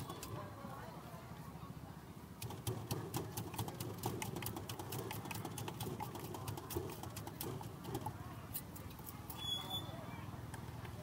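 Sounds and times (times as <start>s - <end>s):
rapid clicking and tapping: 2.4s - 8.2s.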